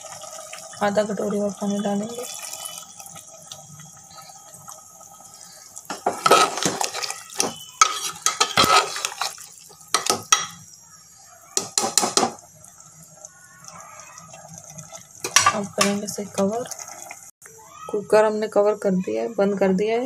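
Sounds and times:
ladle scraping metal pot: 5.9 - 10.6.

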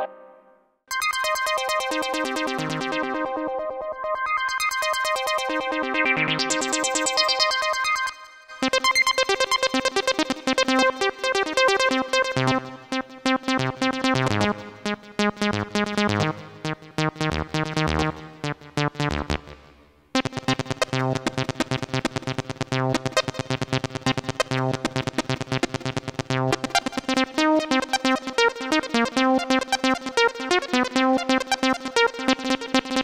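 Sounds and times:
electronic keyboard playing: 0.0 - 4.4, 13.3 - 32.7.

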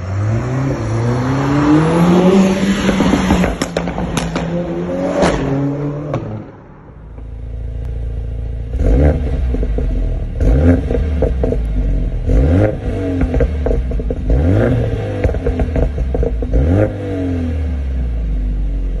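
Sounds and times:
car engine revving: 0.0 - 19.0
car pulling away: 0.0 - 19.0
exhaust crackles and pops: 2.7 - 4.7, 8.7 - 16.9
car engine idling: 6.2 - 16.8.

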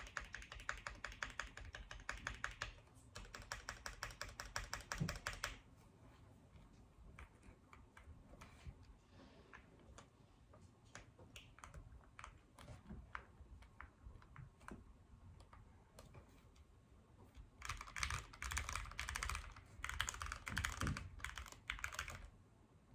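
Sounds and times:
mechanical keyboard typing: 0.0 - 5.7, 10.9 - 14.8, 17.3 - 22.3.

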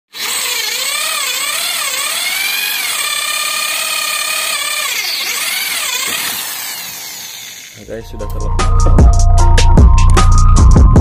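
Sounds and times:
electric drill whining: 0.1 - 8.0.

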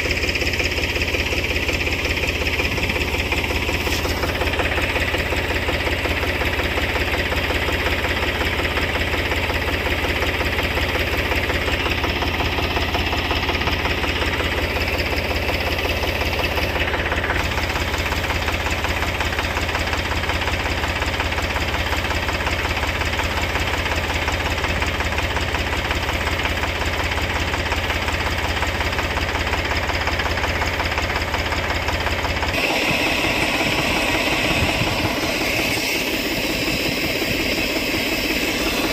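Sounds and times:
tractor engine chugging: 0.0 - 38.9.

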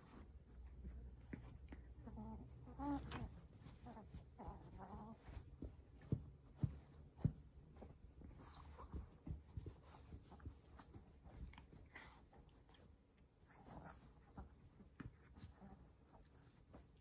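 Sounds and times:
dog whining and grunting: 2.0 - 5.3.

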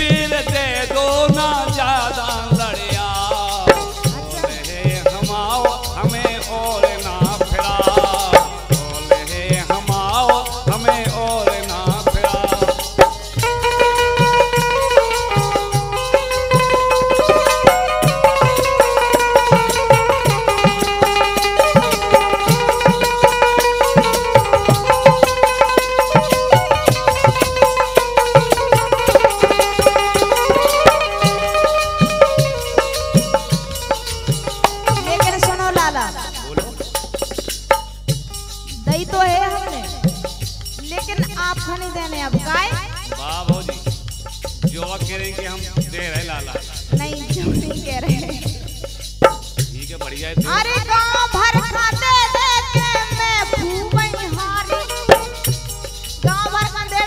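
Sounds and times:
flute and keyboard melody: 0.0 - 41.0
dholak drum beat: 0.0 - 57.0.

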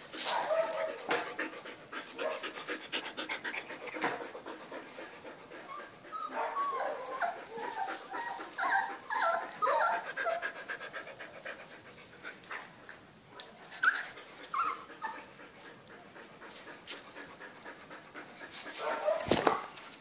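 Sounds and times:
high puppy yelps: 0.3 - 1.0, 6.2 - 10.4, 18.8 - 19.7
puppies whining and yipping: 3.3 - 4.3, 5.7 - 10.5, 13.8 - 15.3.

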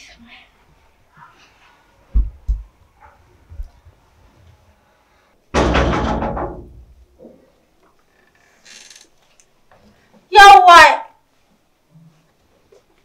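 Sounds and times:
soft thumps: 2.1 - 2.7
door banging open: 5.5 - 7.0.

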